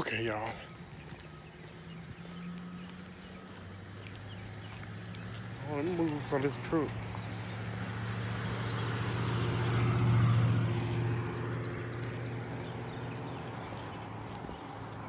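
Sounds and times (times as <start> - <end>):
truck driving past: 0.0 - 15.0.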